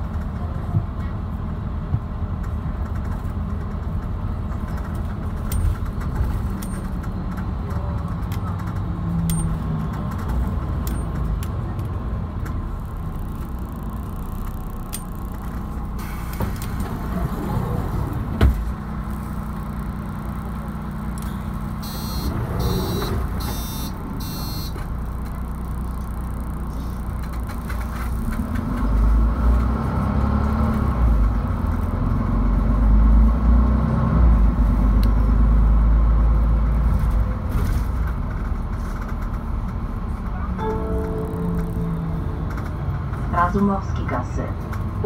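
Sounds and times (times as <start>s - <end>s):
bus engine rumbling: 0.0s - 45.0s
short high-pitched blips: 40.6s - 42.9s.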